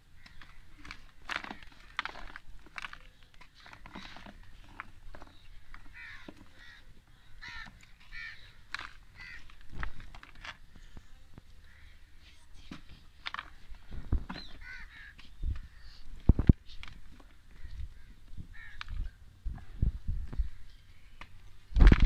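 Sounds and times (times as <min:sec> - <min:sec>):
bird calling: 0:00.1 - 0:02.4, 0:03.0 - 0:11.0, 0:14.3 - 0:16.1, 0:16.7 - 0:19.2.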